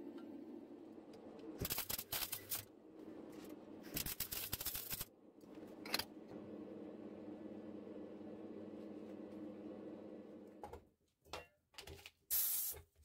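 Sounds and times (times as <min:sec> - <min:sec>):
welder arc crackling: 0:01.4 - 0:02.7, 0:03.9 - 0:05.2.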